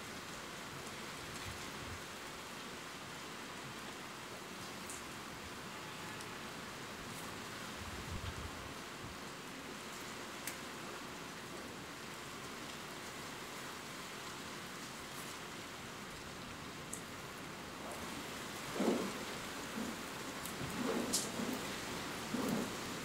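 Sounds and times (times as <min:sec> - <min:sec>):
steady rain: 0:00.0 - 0:23.0
raindrops ticking: 0:18.0 - 0:23.0.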